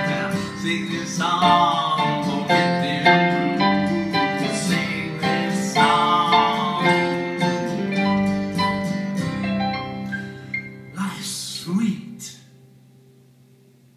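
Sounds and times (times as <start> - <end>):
electronic keyboard chords and melody: 1.4 - 11.0.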